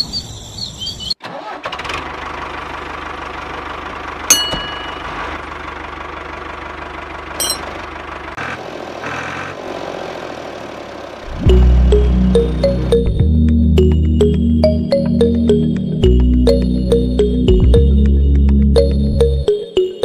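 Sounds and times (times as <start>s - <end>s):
engine running steadily: 2.0s - 14.4s.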